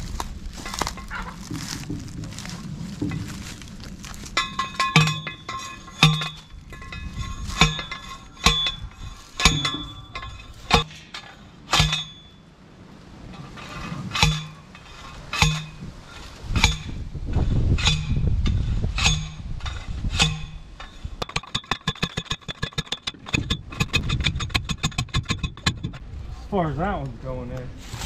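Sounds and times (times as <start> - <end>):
post driver clanking on steel post: 4.3 - 12.4, 13.3 - 17.0, 17.8 - 26.0.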